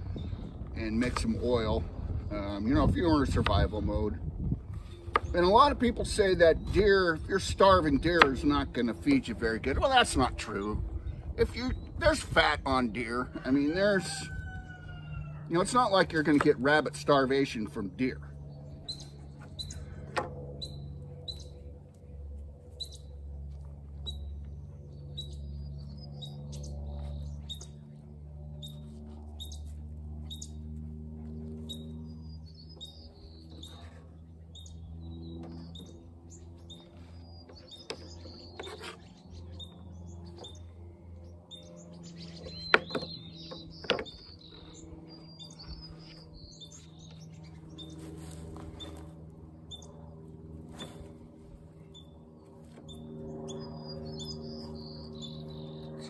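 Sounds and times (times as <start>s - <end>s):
low steady hum: 0.0s - 56.0s
small bird chirping: 18.6s - 19.9s, 20.6s - 21.6s, 22.7s - 23.1s, 24.0s - 27.9s, 30.3s - 30.6s, 31.6s - 33.9s, 34.5s - 40.7s, 49.7s - 50.0s, 51.8s - 56.0s.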